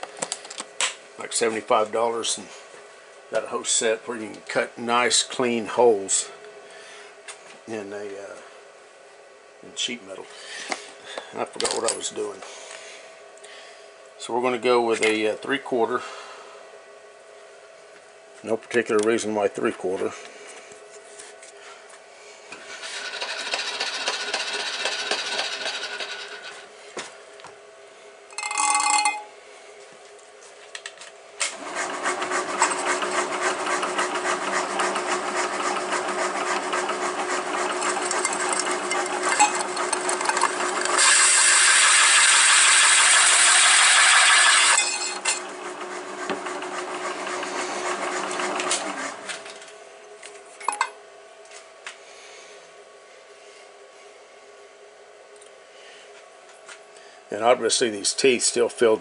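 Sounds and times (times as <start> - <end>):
machine spindle hum: 22.5 - 26.8, 31.4 - 50.3
hole saw cutting metal: 22.8 - 26.6, 31.6 - 49.2.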